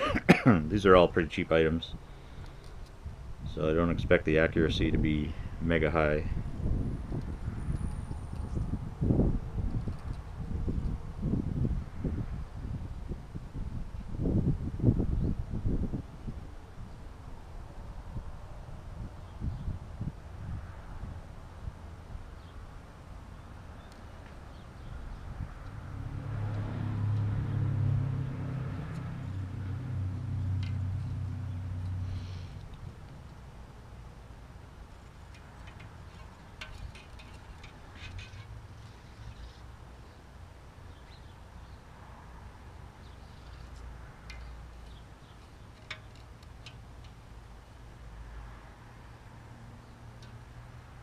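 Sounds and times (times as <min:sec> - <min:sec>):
vehicle engine hum: 0:24.2 - 0:39.9.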